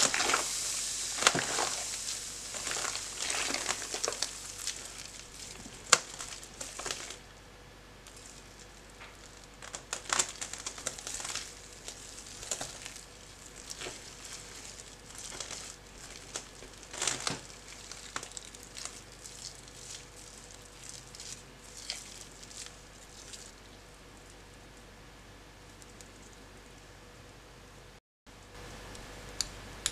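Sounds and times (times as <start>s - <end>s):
hands squishing mashed potato: 0.0s - 7.3s, 8.0s - 24.6s.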